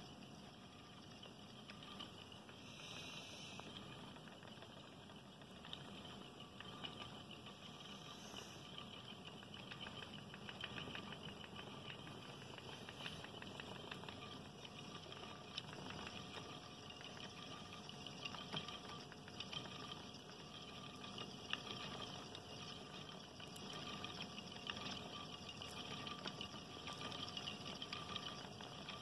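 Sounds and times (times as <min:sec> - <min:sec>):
spinning wheel whirring: 0:00.0 - 0:29.0
light ticks: 0:08.6 - 0:29.0.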